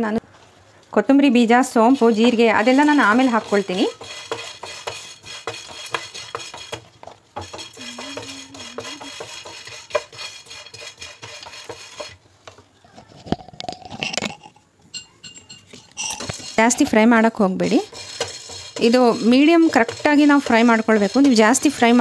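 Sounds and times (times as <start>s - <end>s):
spices rattling in a pan: 1.7s - 12.2s, 15.3s - 22.0s.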